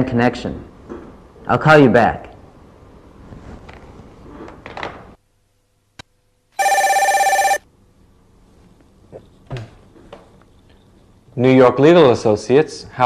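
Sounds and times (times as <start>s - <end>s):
telephone ringing: 6.6s - 7.6s.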